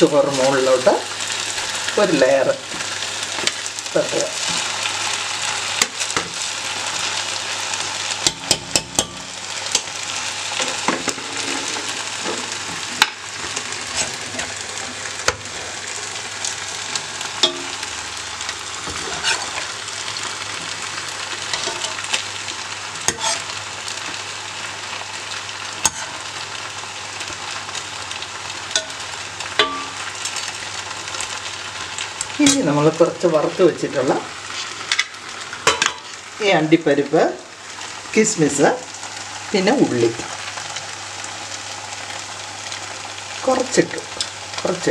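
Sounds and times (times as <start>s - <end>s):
pot sizzling: 0.0s - 44.9s
metal spoon clinking and scraping: 18.9s - 19.6s, 21.5s - 22.0s, 23.1s - 23.5s.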